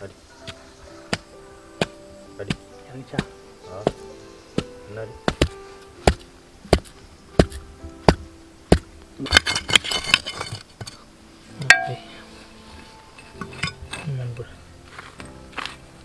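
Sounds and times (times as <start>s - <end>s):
faint background music: 0.0s - 16.0s
stone knocking bamboo stake: 0.5s - 4.0s, 4.6s - 11.0s.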